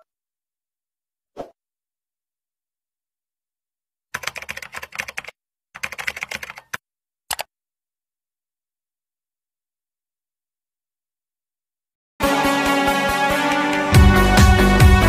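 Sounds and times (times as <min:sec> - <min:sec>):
keyboard typing: 0:04.2 - 0:07.5.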